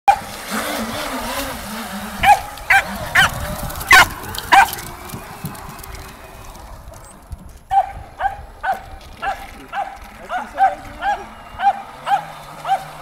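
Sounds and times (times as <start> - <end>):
small dog yapping: 2.2 - 4.8.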